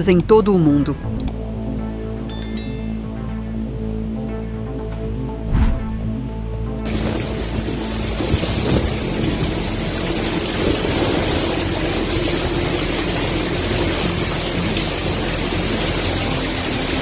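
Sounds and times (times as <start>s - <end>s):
hurricane wind: 6.9s - 13.0s
heavy rain: 6.9s - 17.0s.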